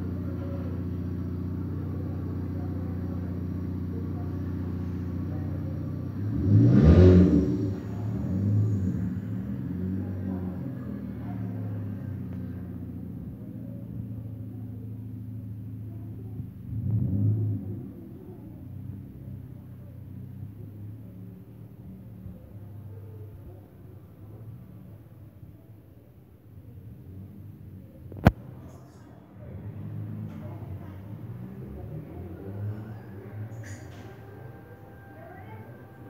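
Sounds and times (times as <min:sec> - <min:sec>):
vehicle engine hum: 0:00.0 - 0:36.0.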